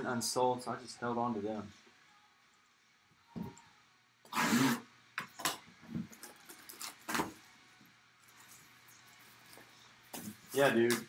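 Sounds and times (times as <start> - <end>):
plastic wrap crinkling: 6.2 - 7.4.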